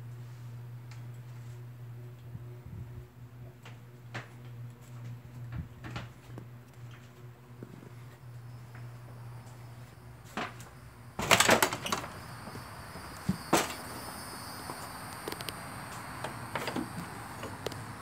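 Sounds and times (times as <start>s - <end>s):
door and blinds clattering: 10.3s - 12.3s, 13.2s - 13.9s.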